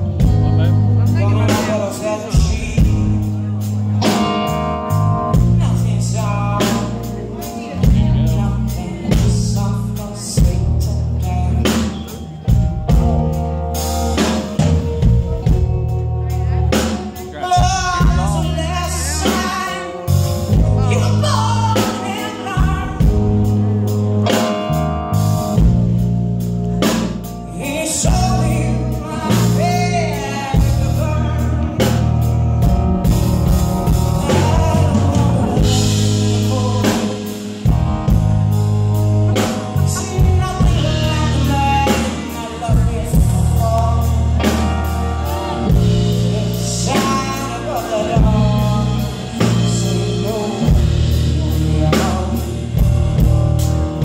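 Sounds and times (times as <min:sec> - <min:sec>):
drum kit: 0:00.0 - 0:54.0
electric bass guitar: 0:00.0 - 0:54.0
piano: 0:00.0 - 0:54.0
woman singing lead vocal: 0:16.7 - 0:23.2, 0:27.5 - 0:32.2, 0:34.0 - 0:37.4, 0:39.3 - 0:52.9.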